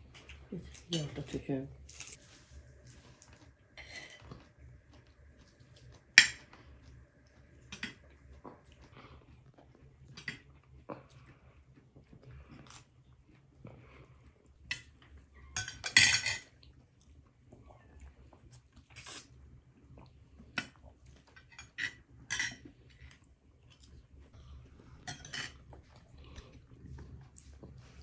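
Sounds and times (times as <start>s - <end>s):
chewing: 1.8s - 15.6s, 16.4s - 28.0s
cutlery clinking on plates: 6.2s - 6.5s, 15.5s - 16.5s, 21.4s - 22.7s, 25.0s - 25.6s.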